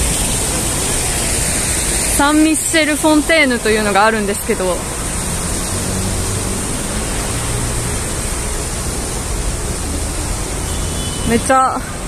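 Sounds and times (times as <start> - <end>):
fountain water splashing: 0.0 - 12.0.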